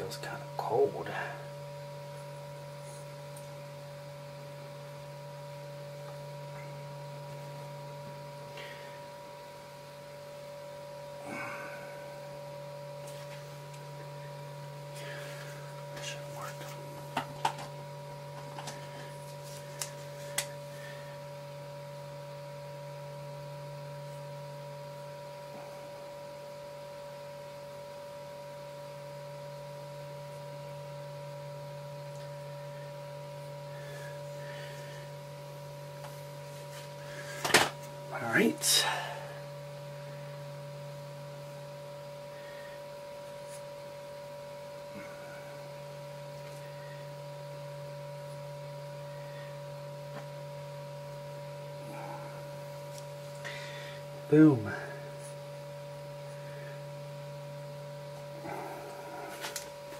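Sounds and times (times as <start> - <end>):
steady electrical hum: 0.0 - 59.9.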